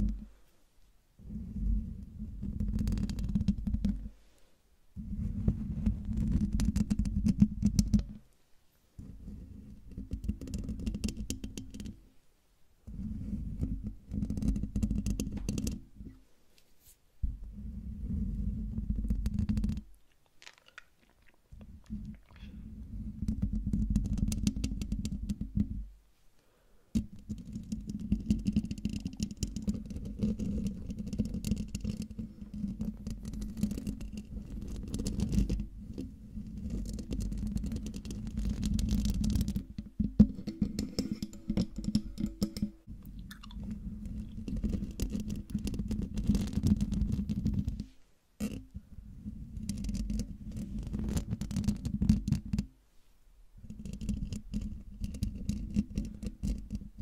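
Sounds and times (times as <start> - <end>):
fingernails scratching microphone grille: 43.7 - 47.9, 53.7 - 57.0.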